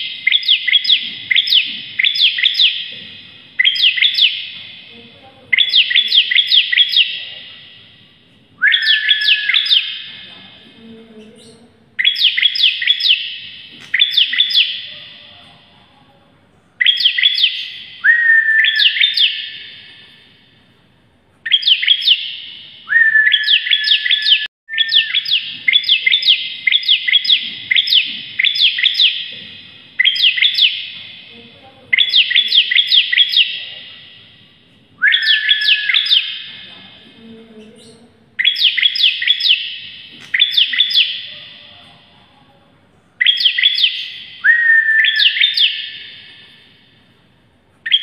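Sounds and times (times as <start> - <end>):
bird singing sharp rising notes: 8.6 - 10.1, 22.9 - 29.2, 35.0 - 36.4, 43.2 - 46.2.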